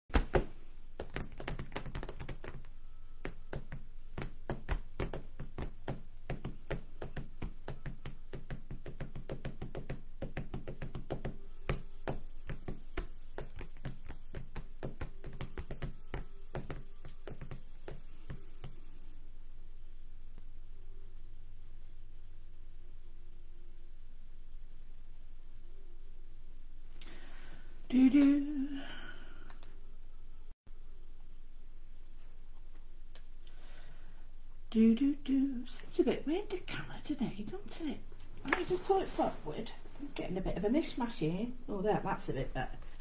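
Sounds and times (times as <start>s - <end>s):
fingers tapping on paper: 0.1s - 18.9s
faint low hum: 0.2s - 43.0s.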